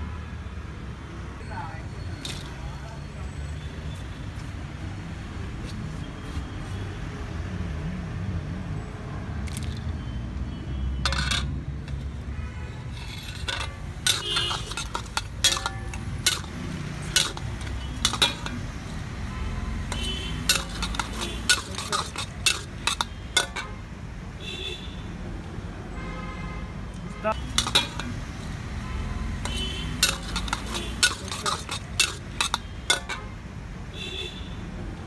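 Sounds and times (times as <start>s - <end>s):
metal spatula scraping a wok: 11.0s - 12.0s, 12.7s - 23.8s, 27.4s - 28.6s, 29.4s - 33.4s.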